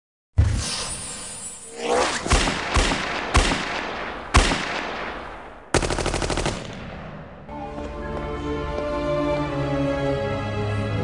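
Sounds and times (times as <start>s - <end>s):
gunshots with echo: 2.2s - 7.5s
automatic gunfire burst: 5.7s - 6.9s.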